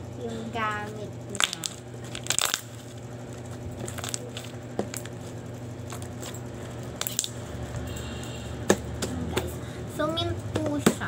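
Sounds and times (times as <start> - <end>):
slime squishing: 1.4 - 6.4.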